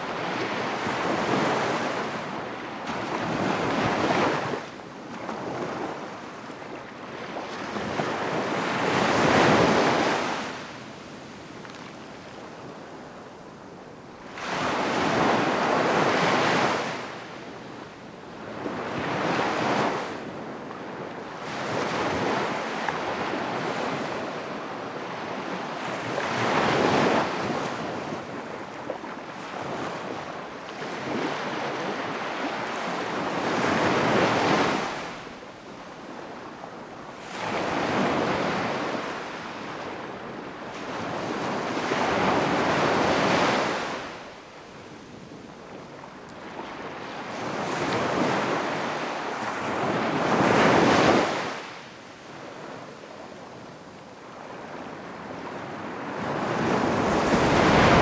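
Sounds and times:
ocean surf breaking: 56.1 - 58.0.

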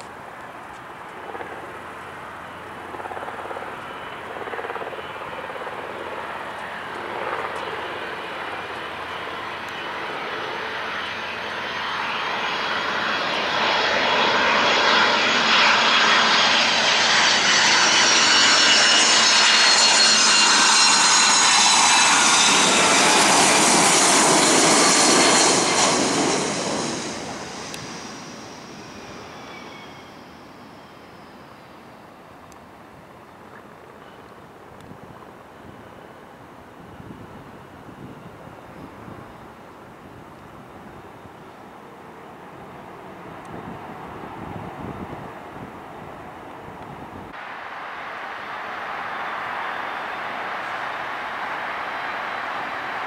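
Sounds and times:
high jet whine: 0.0 - 31.9, 47.0 - 53.0
jet engines on approach: 0.0 - 53.0.

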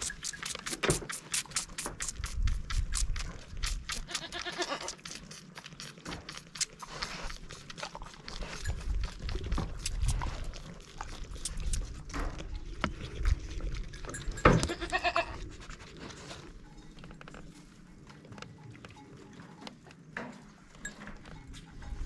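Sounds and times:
goat kids bleating: 4.0 - 5.0, 14.6 - 15.4.

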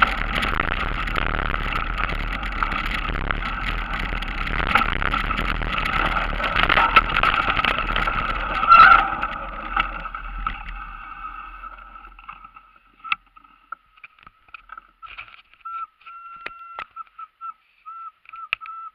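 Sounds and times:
bike tyre noise: 0.0 - 17.0
scattered clicks: 0.0 - 17.2
faint thin whistle-like tone: 15.6 - 18.9.

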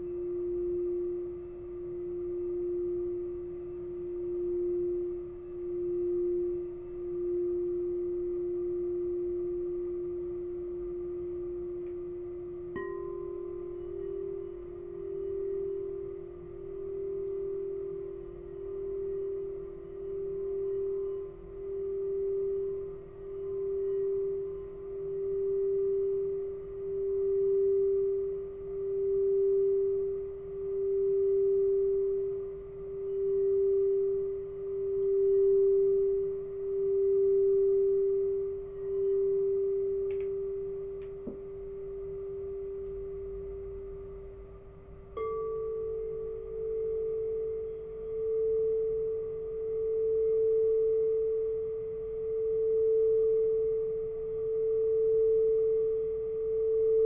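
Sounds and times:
singing bowl rubbed at rim: 0.0 - 43.2
singing bowl struck and ringing: 0.0 - 44.2, 45.1 - 57.0.

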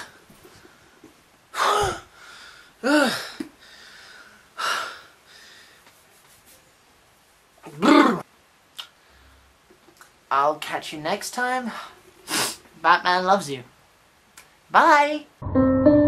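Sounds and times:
man gasping and sighing: 1.5 - 5.5.

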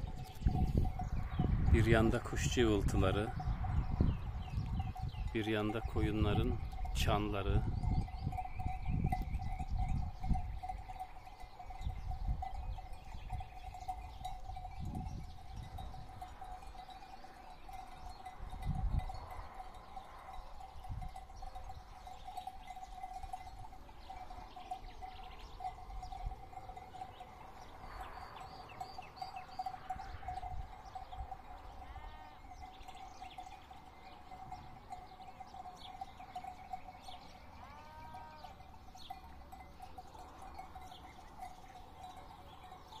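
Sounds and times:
bird chirps: 26.9 - 43.0
sheep bleating: 31.7 - 32.4, 37.6 - 38.7.

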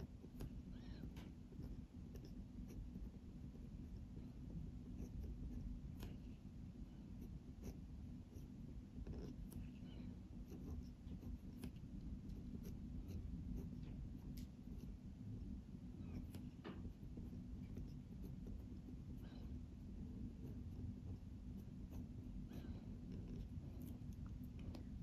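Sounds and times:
low steady hum: 0.0 - 25.0
pen scratching on paper: 0.0 - 25.0.

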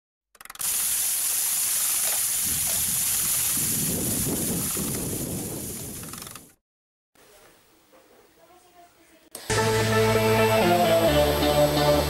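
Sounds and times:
water splashing on paddle wheel: 0.6 - 5.1
water jetting from a hose: 0.6 - 6.3.

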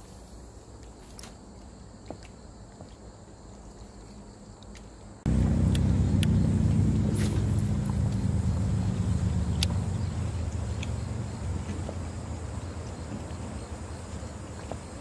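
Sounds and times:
faint outdoor ambience: 0.0 - 15.0
outboard motor humming: 5.3 - 15.0
light ticks: 5.6 - 6.4, 9.5 - 9.8, 10.5 - 11.0.

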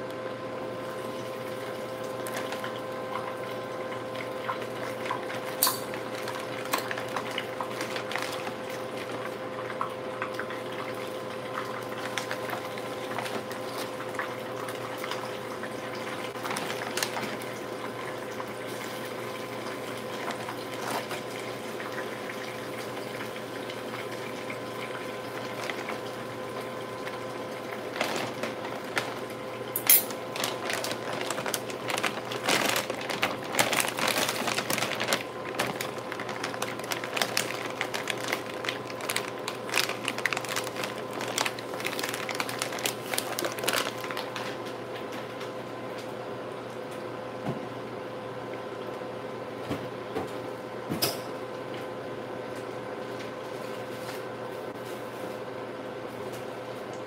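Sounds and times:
plastic bag rustling: 2.2 - 2.8, 5.0 - 9.2, 11.9 - 13.9, 16.4 - 17.6, 20.1 - 21.5, 25.4 - 26.1, 27.0 - 44.7.

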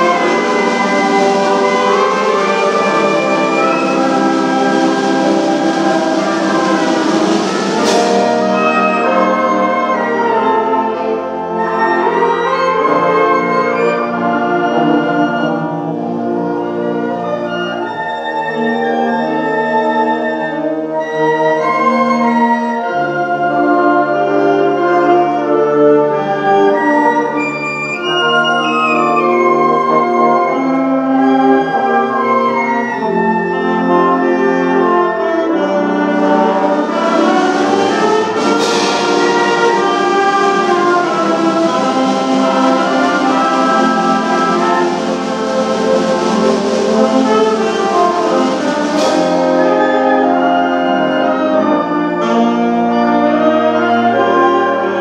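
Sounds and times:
concert band playing sustained chords: 0.0 - 18.0, 34.3 - 55.0.

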